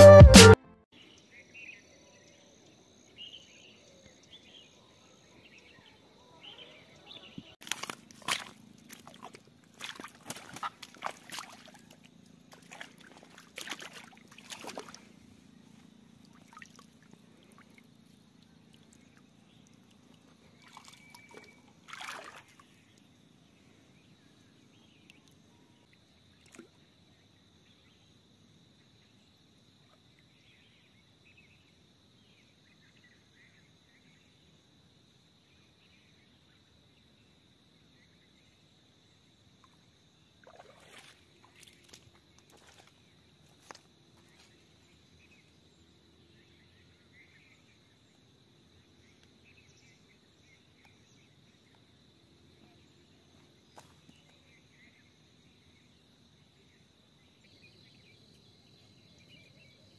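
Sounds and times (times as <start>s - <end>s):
feet wading through muddy water: 7.2s - 23.1s, 40.4s - 45.4s.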